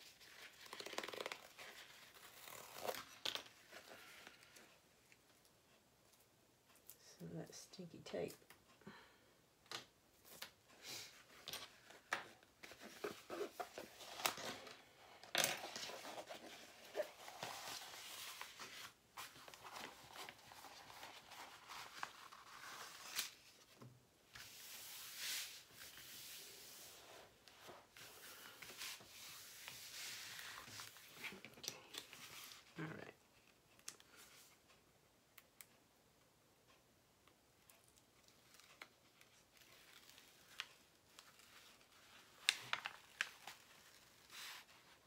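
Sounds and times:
hands sliding across plastic film: 24.3s - 31.3s.

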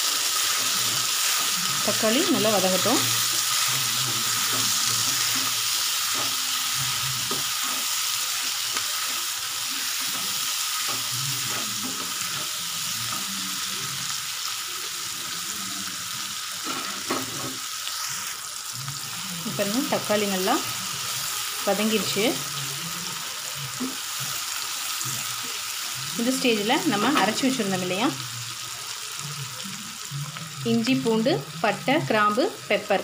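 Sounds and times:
spatula stirring: 0.0s - 13.2s
onions sizzling in hot oil: 0.0s - 33.0s.

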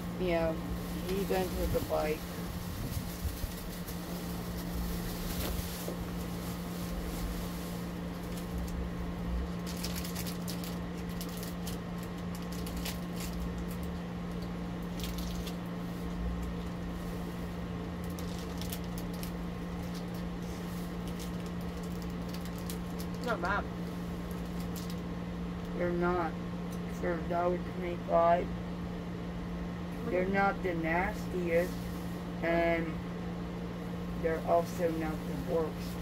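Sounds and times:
steady low hum: 0.0s - 36.0s
crackers crunching: 7.9s - 17.0s, 17.7s - 25.7s.

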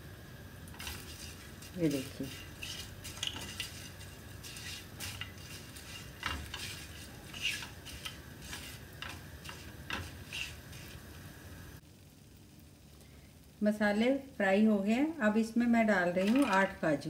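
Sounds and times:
spices roasting in hot oil: 0.0s - 17.0s
spatula tapping pan: 0.7s - 11.0s
spatula scraping frying pan: 0.7s - 11.2s.

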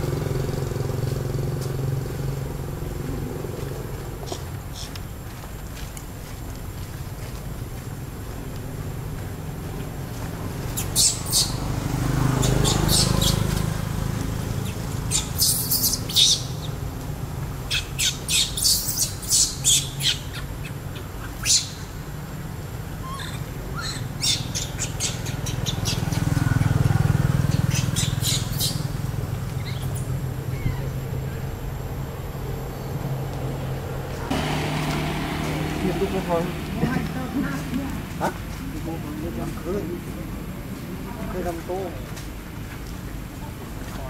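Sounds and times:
baby monkey squealing: 10.8s - 11.7s, 12.3s - 13.7s, 14.6s - 16.7s, 17.7s - 21.9s, 23.0s - 26.6s, 27.4s - 29.0s, 29.6s - 31.0s.

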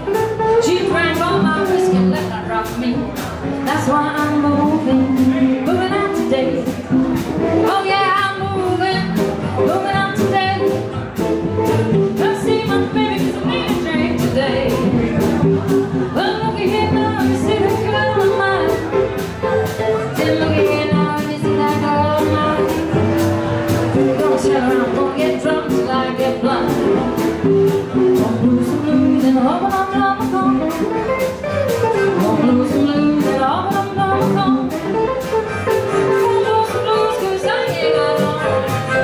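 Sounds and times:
guitars: 0.0s - 39.0s
drum beat: 9.0s - 20.9s
person singing: 31.9s - 34.8s, 35.7s - 39.0s.

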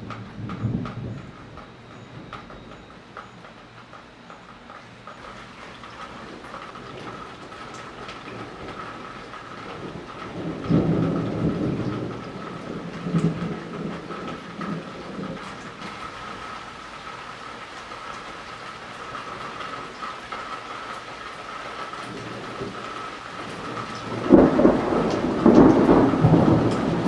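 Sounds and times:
thunder rumbling: 0.0s - 3.4s, 5.3s - 16.7s, 22.0s - 27.0s.

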